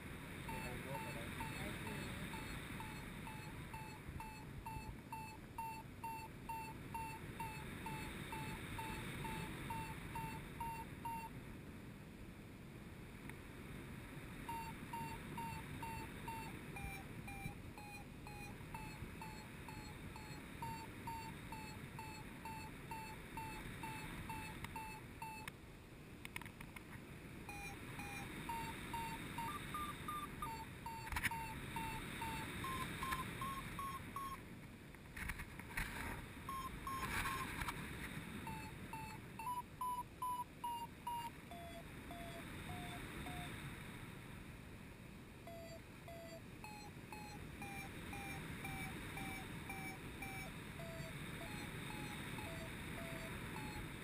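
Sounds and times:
variometer beeping: 0.4 - 11.3, 14.5 - 25.5, 27.5 - 34.4, 36.5 - 37.8, 38.4 - 43.6, 45.4 - 54.0.

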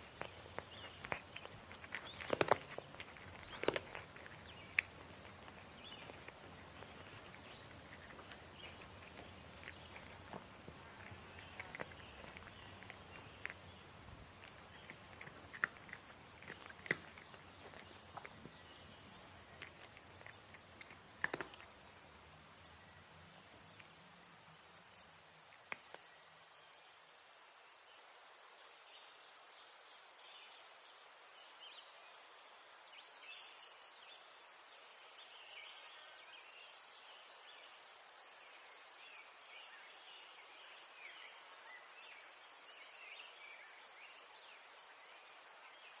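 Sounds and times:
sharp clicks: 0.0 - 21.8
insects trilling: 0.0 - 27.0.

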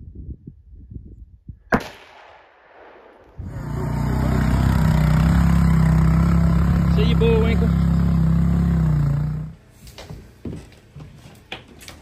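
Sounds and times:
rifle shot: 1.7 - 3.4
atv engine running: 3.4 - 9.6.

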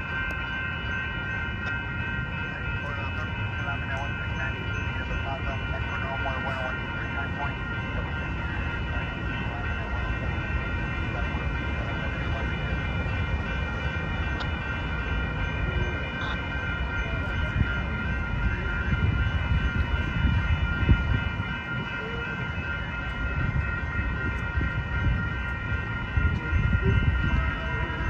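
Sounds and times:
crossing warning bells ringing: 0.0 - 28.0.

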